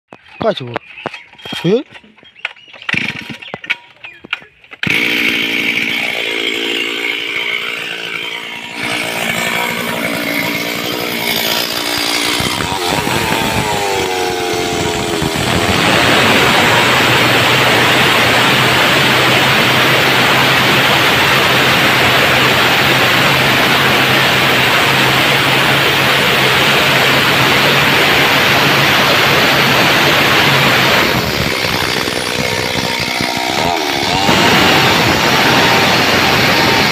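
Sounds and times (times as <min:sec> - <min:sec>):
starter cord tugs: 0:00.1 - 0:19.4, 0:27.4 - 0:36.9
chainsaw cutting log: 0:00.9 - 0:03.9, 0:04.7 - 0:36.9
chainsaw engine running: 0:01.4 - 0:03.6, 0:04.7 - 0:36.9.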